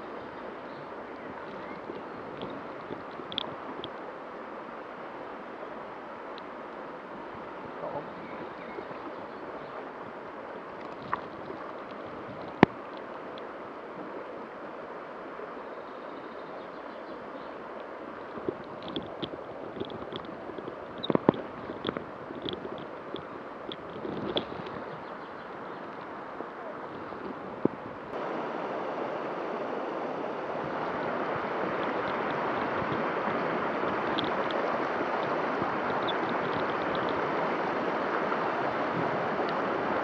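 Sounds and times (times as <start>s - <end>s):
river flowing over stones: 0.0s - 40.0s
small knocks and clicks: 18.8s - 24.8s.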